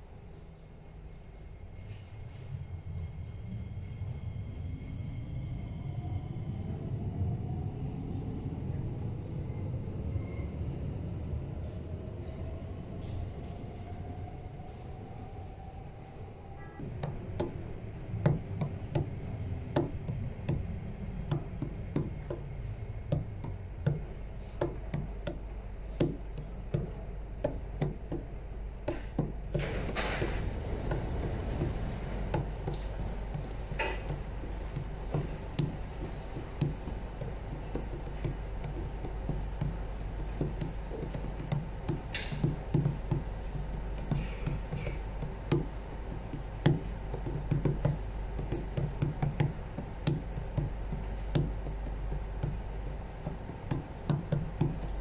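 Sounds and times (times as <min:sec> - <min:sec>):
train slowing to a stop: 0:00.0 - 0:16.9, 0:17.6 - 0:27.8, 0:29.9 - 0:37.7
sharp knocks and taps: 0:16.8 - 0:17.6, 0:18.2 - 0:19.1, 0:19.7 - 0:20.7, 0:21.3 - 0:22.5, 0:23.1 - 0:25.4, 0:26.0 - 0:54.9
train doors opening: 0:16.8 - 0:55.0.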